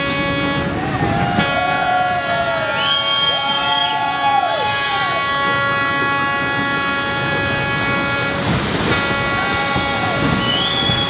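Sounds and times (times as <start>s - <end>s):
horn blast: 0.0s - 11.0s
rushing noise: 0.0s - 11.0s.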